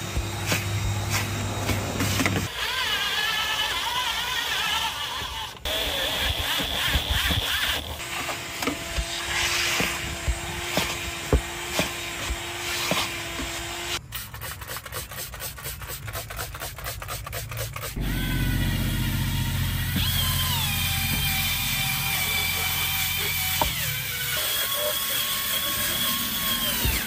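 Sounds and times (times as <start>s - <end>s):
low motor sound: 0.0s - 2.5s, 18.0s - 24.2s
brush scrubbing a surface: 9.0s - 11.0s, 14.1s - 18.0s.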